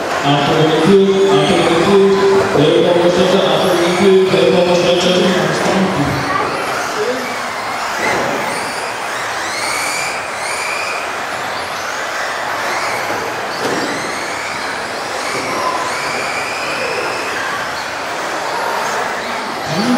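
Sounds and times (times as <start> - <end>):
rc car motors whining: 0.0 - 19.9.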